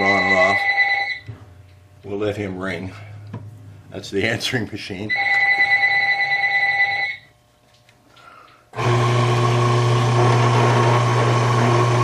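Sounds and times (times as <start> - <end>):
telephone ringing: 0.0 - 1.3, 5.1 - 7.3
electric drill motor humming: 8.8 - 12.0.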